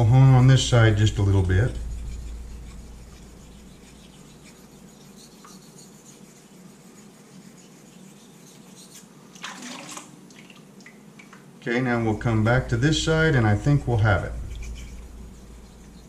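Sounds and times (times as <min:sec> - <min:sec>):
razor blade scraping on whetstone: 0:01.2 - 0:09.1.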